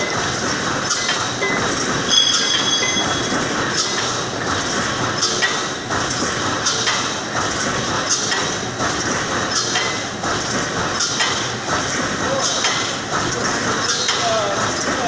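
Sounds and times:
welding machine clatter: 0:00.0 - 0:15.0
metallic clanks: 0:00.9 - 0:04.2.

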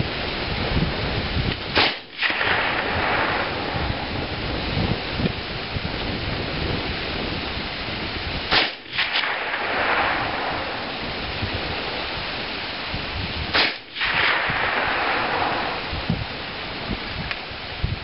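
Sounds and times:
suppressed rifle shots: 0:01.7 - 0:04.1, 0:08.5 - 0:11.9, 0:13.5 - 0:16.0.

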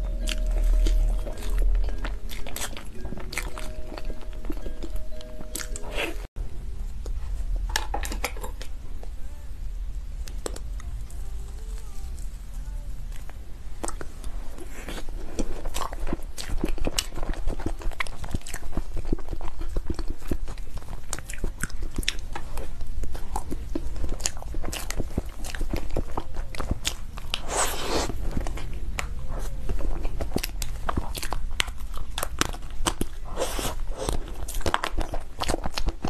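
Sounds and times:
chewing: 0:00.0 - 0:06.3, 0:13.1 - 0:36.0.

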